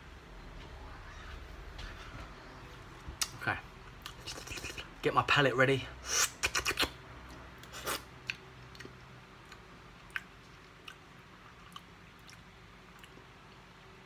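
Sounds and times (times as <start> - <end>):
person chewing: 4.0 - 4.9, 6.1 - 13.7
wet mouth clicks: 4.0 - 4.9, 6.1 - 11.0.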